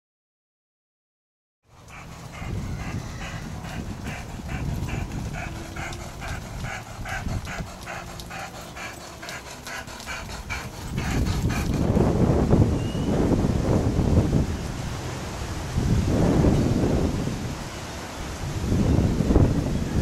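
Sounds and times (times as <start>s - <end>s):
rhythmic panting breaths: 1.7s - 12.2s
wind rumble on microphone: 1.7s - 20.0s.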